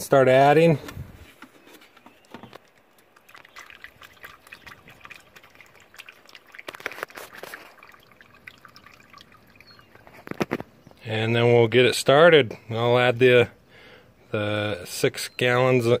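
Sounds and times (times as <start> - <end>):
coolant pouring into funnel: 2.6 - 10.8.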